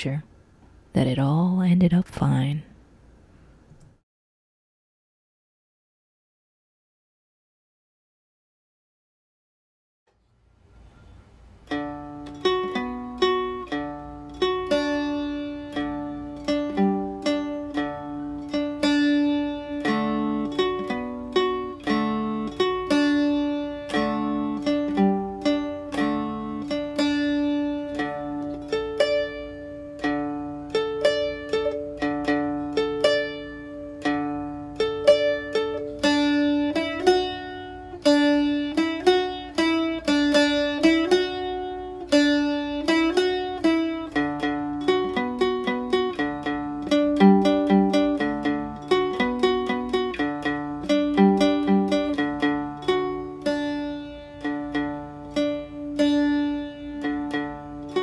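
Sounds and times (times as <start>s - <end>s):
plucked dulcimer melody: 11.7s - 58.0s.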